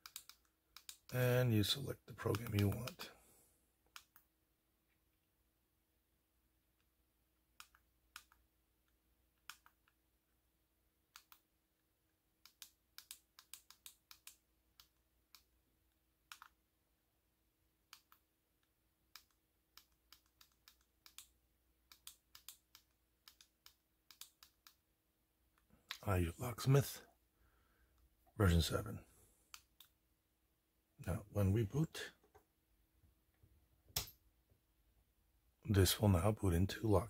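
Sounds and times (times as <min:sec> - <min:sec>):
small push-buttons clicking: 0:02.3 - 0:03.0.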